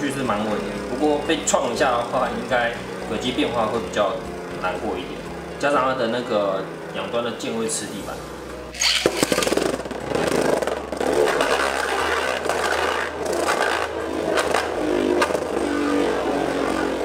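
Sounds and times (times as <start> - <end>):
spinning top grinding on plastic: 8.8 - 17.0.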